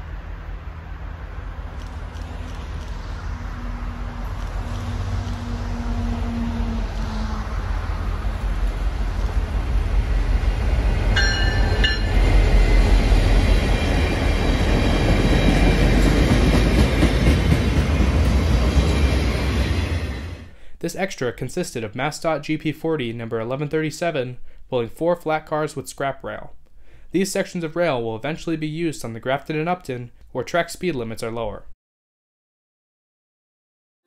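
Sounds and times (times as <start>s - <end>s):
diesel locomotive engine rumble: 0.0s - 20.6s
train wheels rolling on rails: 0.3s - 20.5s
brief high-pitched tone: 11.2s - 12.3s.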